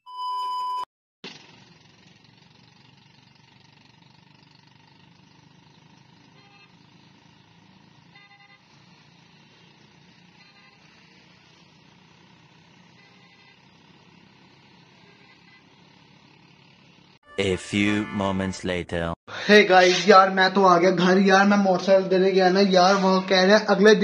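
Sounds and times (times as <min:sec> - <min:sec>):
faint road traffic: 0:01.3 - 0:17.2, 0:19.3 - 0:24.0
horn beeps: 0:17.3 - 0:19.2.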